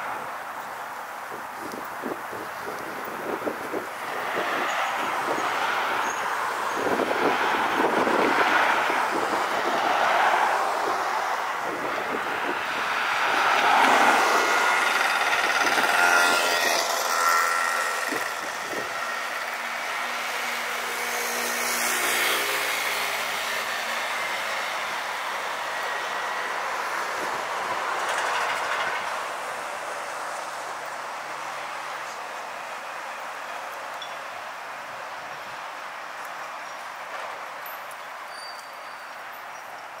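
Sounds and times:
multi-tone vehicle whine: 0:01.6 - 0:30.5
cars driving past: 0:02.0 - 0:36.3.

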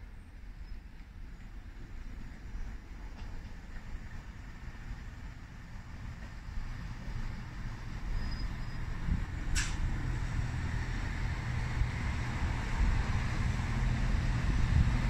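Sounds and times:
diesel train engine rumble: 0:00.0 - 0:15.0
sharp click: 0:09.5 - 0:09.8.

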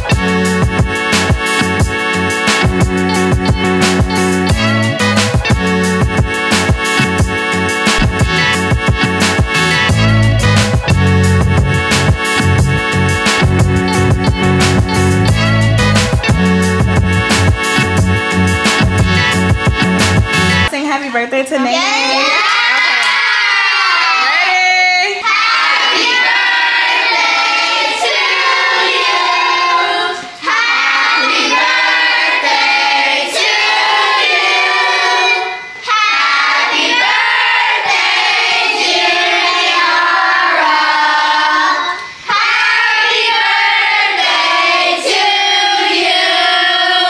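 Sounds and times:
children singing together: 0:25.2 - 0:47.0.

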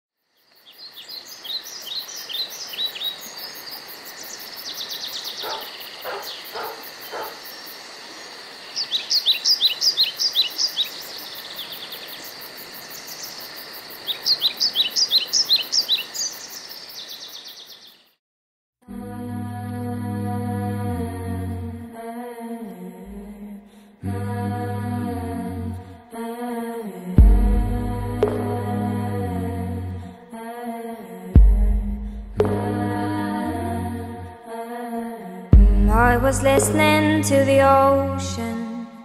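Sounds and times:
songbirds singing: 0:00.3 - 0:18.2.

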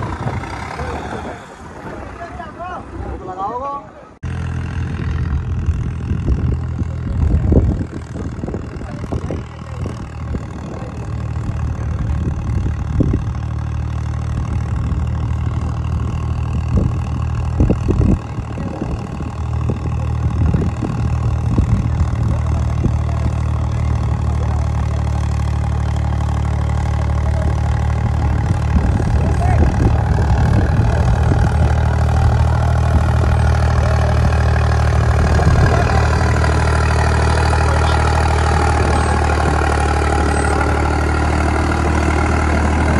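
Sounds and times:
tractor diesel engine running: 0:00.0 - 0:42.9
bumps and rattles: 0:04.2 - 0:42.9.

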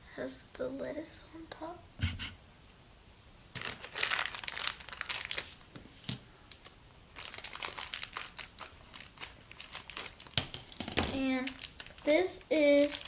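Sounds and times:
plastic wrapper crinkling: 0:03.5 - 0:05.8, 0:06.5 - 0:13.0.

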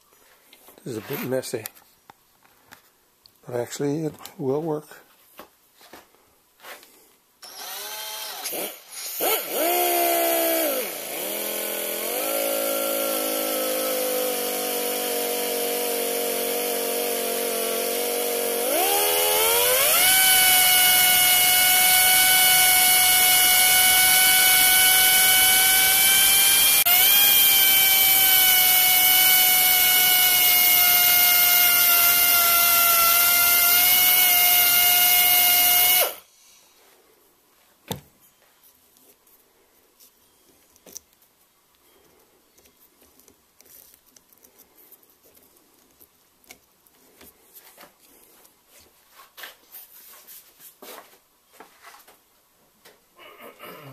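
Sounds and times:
cordless drill motor whining: 0:07.4 - 0:36.2
rotary grinder whining and grinding: 0:07.4 - 0:36.2.

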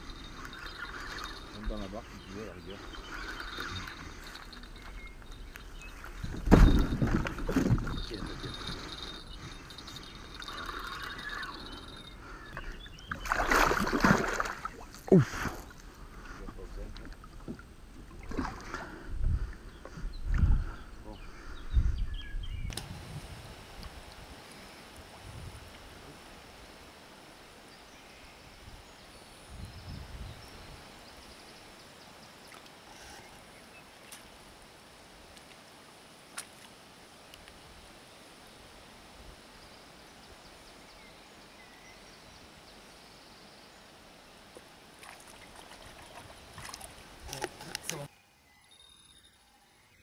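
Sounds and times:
faint bird chirps: 0:00.0 - 0:07.0, 0:07.6 - 0:14.0
wind rumble on microphone: 0:03.7 - 0:10.1, 0:19.0 - 0:24.4, 0:25.1 - 0:26.2, 0:28.4 - 0:31.2
loud water splash: 0:13.2 - 0:14.9
faint steady hiss: 0:22.7 - 0:50.0.

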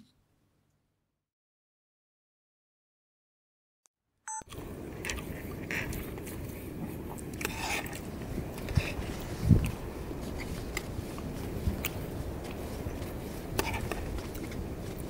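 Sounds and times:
background noise: 0:00.0 - 0:01.1
faint rustles and scrapes: 0:05.2 - 0:15.0.

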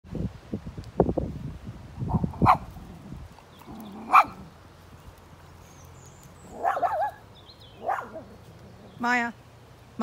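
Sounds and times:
small dog barking: 0:02.1 - 0:02.7, 0:04.0 - 0:04.5, 0:06.5 - 0:07.2, 0:07.8 - 0:08.4.

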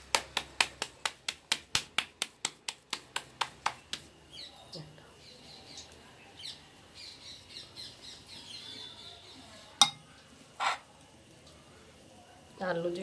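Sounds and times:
birds chirping: 0:04.2 - 0:10.4
metal spoon knocking on clay bowl: 0:09.8 - 0:10.1
spoon scraping bowl: 0:10.6 - 0:10.9.

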